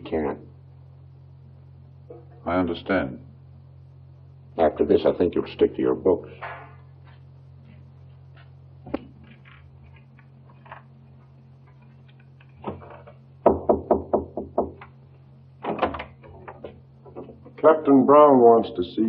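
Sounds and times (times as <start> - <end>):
steady low hum: 0.0 - 19.0
knocking on a door: 13.4 - 14.9.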